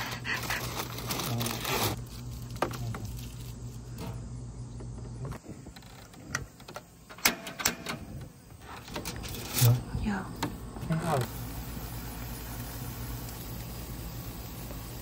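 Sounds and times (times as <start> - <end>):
aluminum foil crinkling: 0.0 - 4.0.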